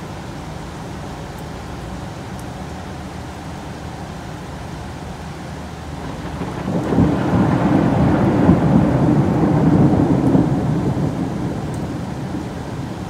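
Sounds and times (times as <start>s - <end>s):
heavy rain: 0.0s - 13.0s
deep thunder roll: 6.0s - 13.0s.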